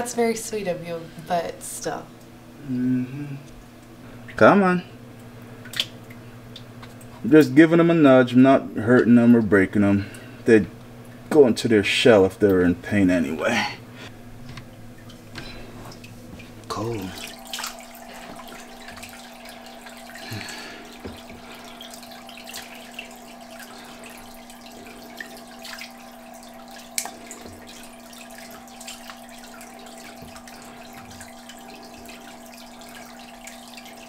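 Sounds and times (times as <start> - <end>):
steady hum: 0.0 - 34.0
water splashing and dripping: 5.6 - 7.1, 14.5 - 34.0.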